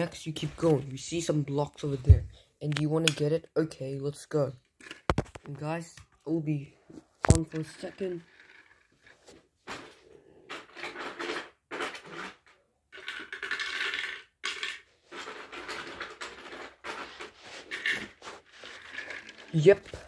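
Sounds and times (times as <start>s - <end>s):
plastic bricks clattering: 10.5s - 20.0s.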